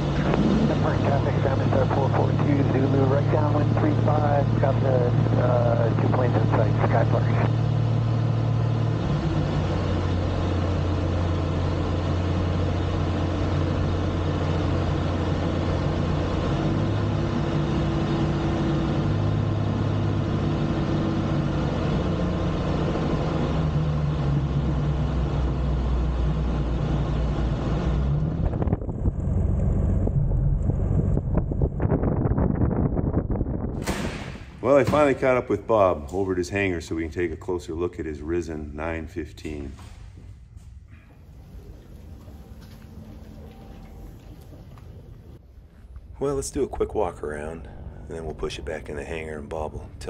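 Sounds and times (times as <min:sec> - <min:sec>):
plane engine and propeller: 0:00.0 - 0:39.8, 0:40.9 - 0:50.0
rushing wind: 0:27.5 - 0:34.6.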